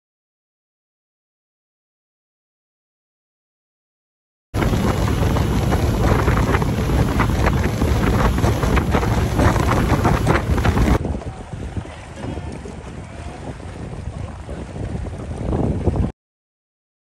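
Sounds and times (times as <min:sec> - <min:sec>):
boat running fast across water: 0:04.6 - 0:16.1
wind buffeting microphone: 0:04.6 - 0:16.1.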